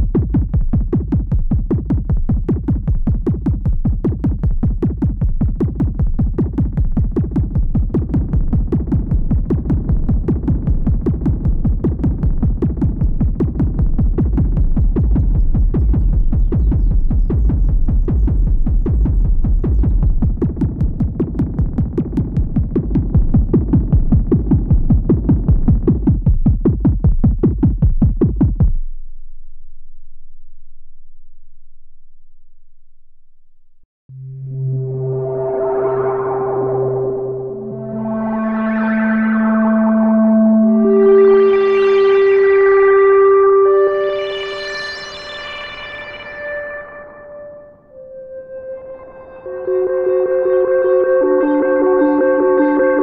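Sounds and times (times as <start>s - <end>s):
synthesizer bass sequence: 3.1s - 26.3s, 34.1s - 53.0s.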